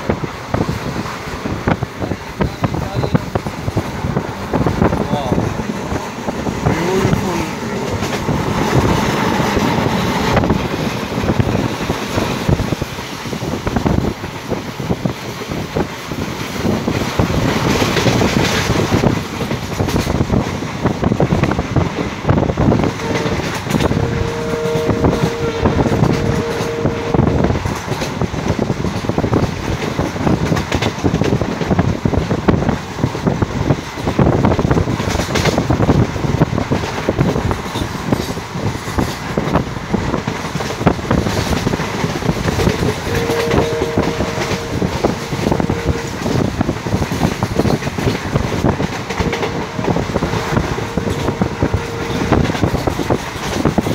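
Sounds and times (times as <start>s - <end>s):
train wheels clattering: 0.0s - 53.9s
wind noise: 0.0s - 53.9s
two-tone train horn blast: 22.8s - 28.0s, 42.6s - 46.9s, 48.7s - 53.2s.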